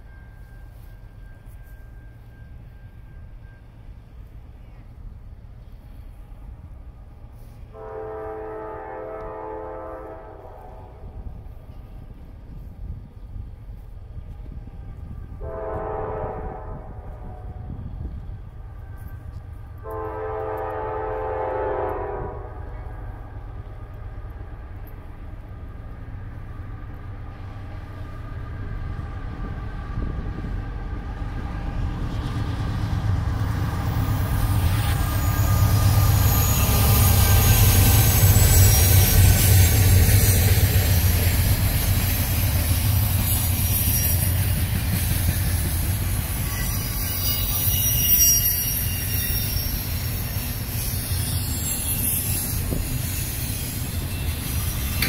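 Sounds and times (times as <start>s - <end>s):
train wheel noise: 0.0s - 55.0s
locomotive horn blasts: 7.7s - 11.2s, 15.3s - 17.8s, 19.8s - 22.9s.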